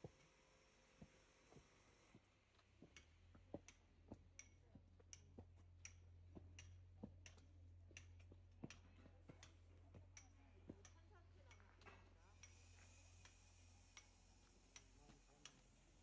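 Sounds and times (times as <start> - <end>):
footsteps on stone steps: 6.3 - 7.6.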